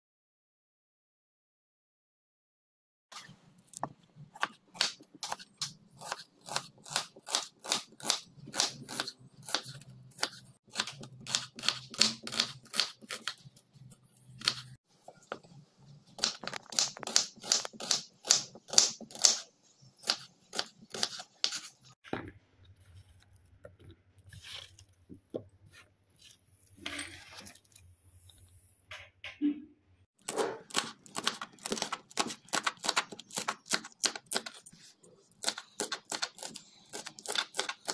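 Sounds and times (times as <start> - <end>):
knife slicing onion on board: 4.4 - 13.4, 16.2 - 22.0, 30.2 - 34.7, 35.4 - 37.9.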